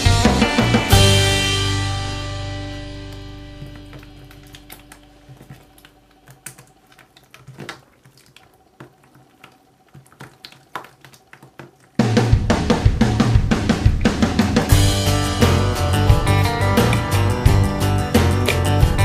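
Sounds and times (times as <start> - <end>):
loud drum-led music: 0.0 - 4.4, 12.0 - 19.0
music track: 0.0 - 6.1, 12.0 - 19.0
slime squishing: 3.7 - 12.0.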